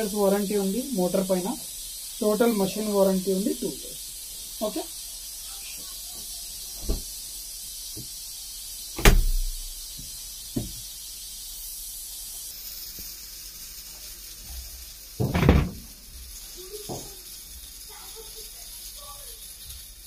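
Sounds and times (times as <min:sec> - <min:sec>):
dishwasher door clunk: 0:09.0 - 0:09.5, 0:15.2 - 0:15.9.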